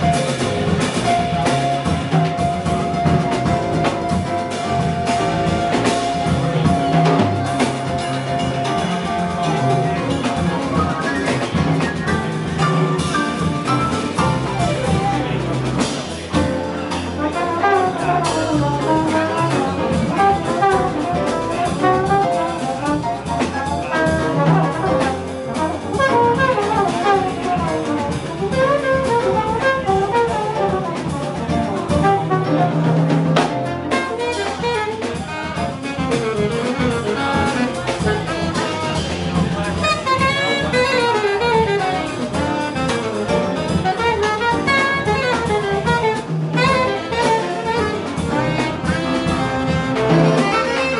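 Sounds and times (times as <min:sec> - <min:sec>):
double bass: 0:00.0 - 0:50.9
drum kit: 0:00.0 - 0:50.9
piano: 0:00.0 - 0:50.9
trombone: 0:00.0 - 0:50.9
saxophones: 0:43.8 - 0:50.9.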